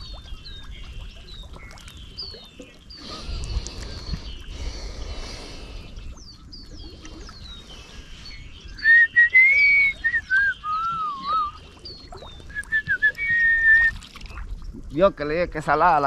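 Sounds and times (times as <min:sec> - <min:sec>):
small birds chirping: 0:00.0 - 0:16.0
person whistling a tune: 0:08.8 - 0:11.6, 0:12.5 - 0:14.0.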